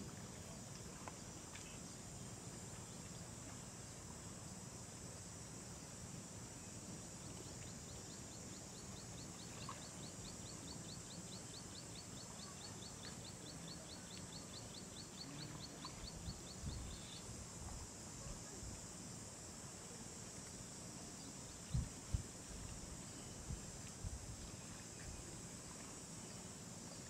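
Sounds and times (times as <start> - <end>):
insect hiss: 0.0 - 27.0.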